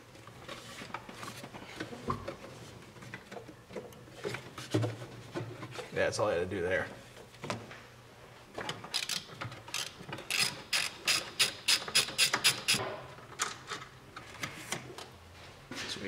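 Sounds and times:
socket ratchet clicking: 0:08.9 - 0:12.8.

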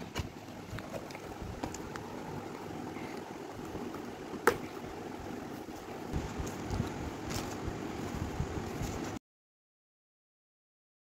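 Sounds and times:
steady background hiss: 0:00.0 - 0:09.2.

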